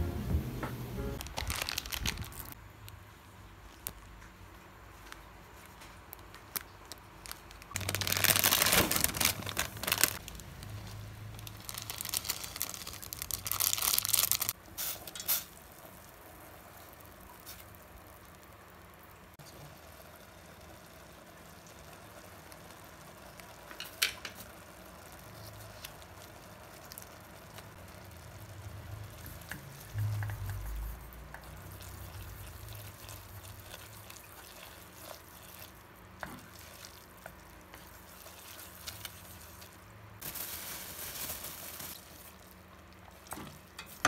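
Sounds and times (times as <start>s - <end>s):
plastic sachet crinkling and tearing: 1.2s - 2.6s, 6.5s - 14.6s, 38.1s - 42.4s.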